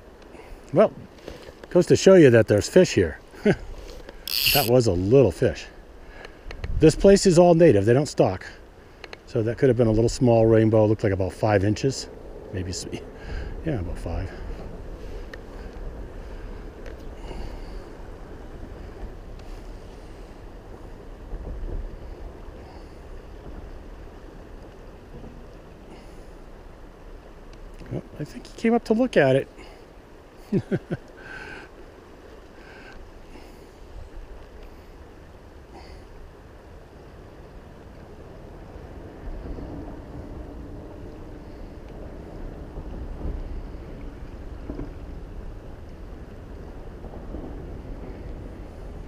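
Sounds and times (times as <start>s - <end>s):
rippling river water: 0.0s - 49.0s
river water rushing: 22.0s - 39.2s
wind buffeting microphone: 38.6s - 49.0s.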